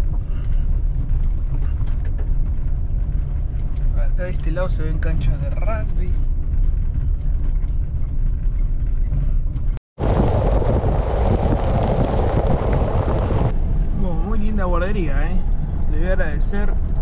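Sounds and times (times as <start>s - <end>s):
car road rumble: 0.0s - 17.0s
harsh steady noise: 10.0s - 13.6s.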